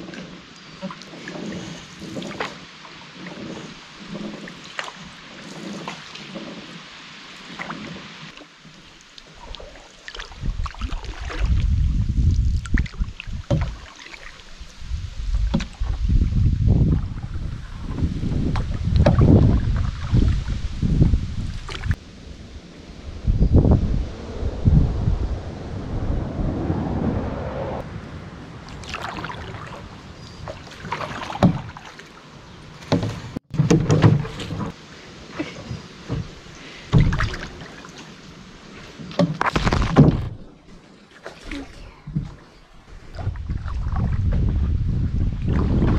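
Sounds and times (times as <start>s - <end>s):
paddle splashing water: 0.0s - 22.0s, 28.6s - 45.9s
reeds rustling against boat: 0.0s - 24.1s
wind buffeting microphone: 10.2s - 13.8s, 14.6s - 31.8s, 42.0s - 45.9s.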